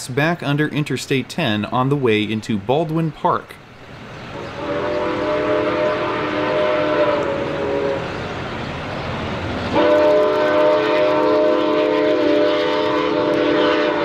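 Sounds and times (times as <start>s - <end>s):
steam locomotive chime whistle: 4.4s - 8.2s, 9.7s - 14.0s.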